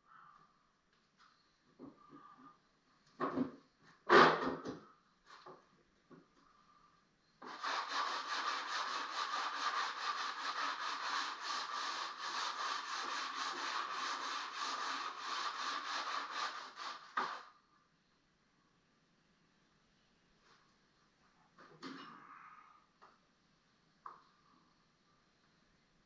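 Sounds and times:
sanding strokes on wood: 7.4 - 17.5.

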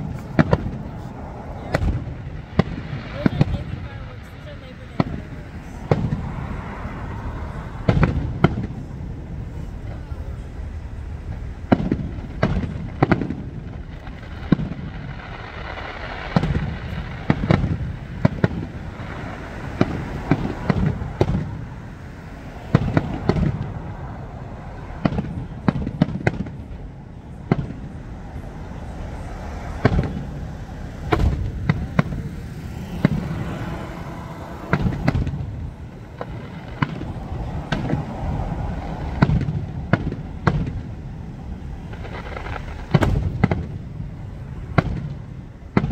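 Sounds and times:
fireworks booming and cracking: 0.0 - 45.9
fireworks crackling: 0.0 - 45.9.

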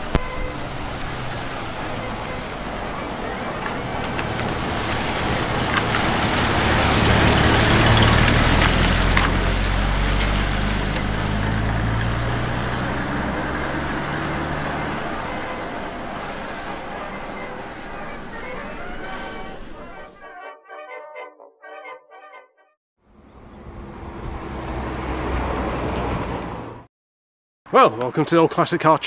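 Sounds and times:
tyre noise on wet road: 0.0 - 20.1
truck engine running: 0.0 - 20.2.

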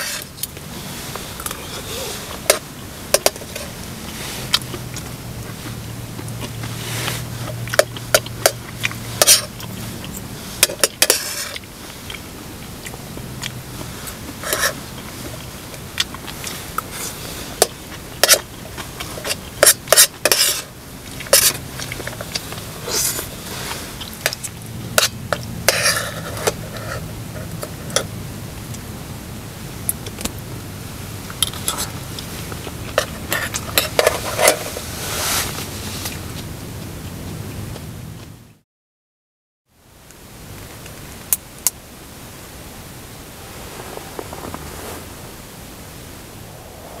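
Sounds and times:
utensils scraping cookware: 10.6 - 11.6, 19.6 - 20.7.

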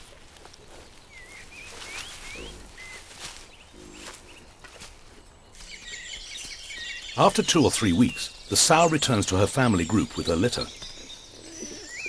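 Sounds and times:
boar rustling through dry leaves: 0.0 - 7.1
small birds chirping: 0.0 - 12.0.

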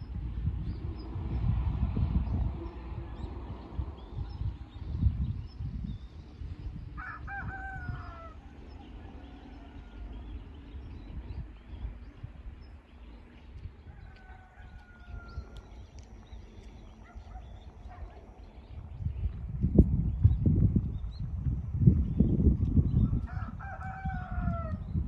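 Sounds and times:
low rumble: 0.0 - 25.0
rooster crowing: 7.0 - 10.3, 23.3 - 24.8.

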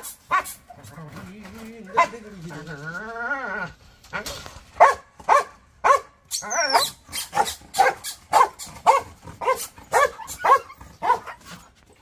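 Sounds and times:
dog barking aggressively: 0.0 - 0.8, 4.7 - 11.6.

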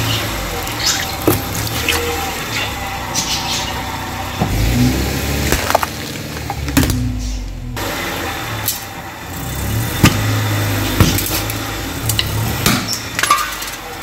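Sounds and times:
car engine low hum: 0.0 - 14.0
tyre crushing packaging: 4.7 - 7.1.

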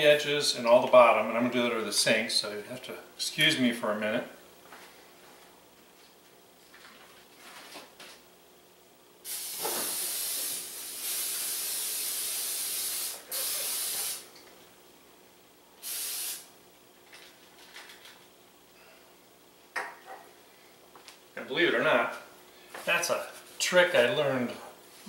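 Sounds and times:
aerosol spray hissing: 9.2 - 14.3, 15.8 - 16.5.

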